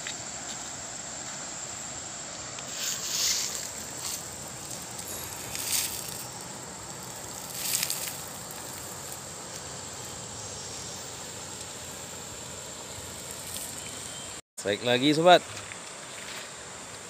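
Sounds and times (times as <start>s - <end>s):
river running over stones: 1.9s - 10.2s.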